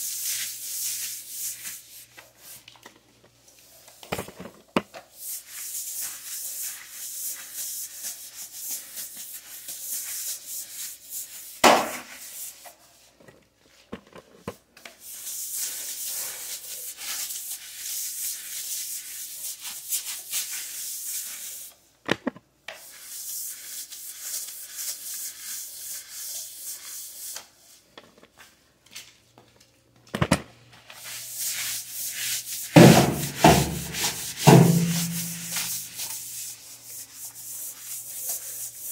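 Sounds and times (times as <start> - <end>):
broom scrubbing wet tile floor: 0.0 - 2.7, 4.9 - 13.1, 14.9 - 21.8, 22.7 - 27.9, 30.8 - 38.9
sharp knocks: 32.8 - 35.6.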